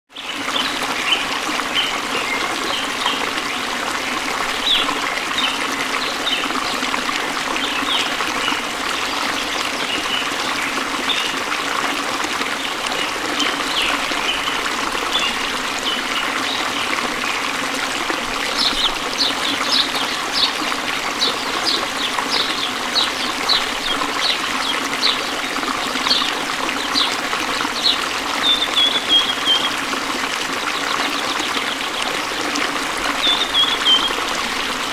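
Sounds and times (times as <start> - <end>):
trickling running water: 0.1 - 34.9.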